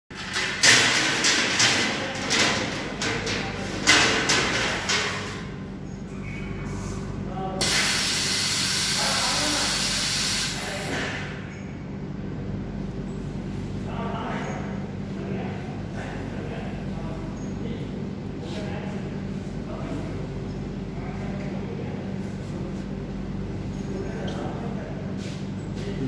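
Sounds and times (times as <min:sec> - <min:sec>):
wire racks clattering: 0:00.1 - 0:05.6
loud steady hiss: 0:07.6 - 0:11.1.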